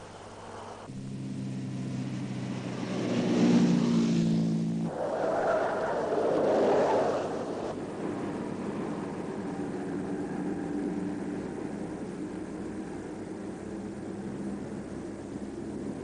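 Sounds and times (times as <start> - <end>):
car engine hum: 0.0 - 16.0
car rushing past: 0.9 - 12.2.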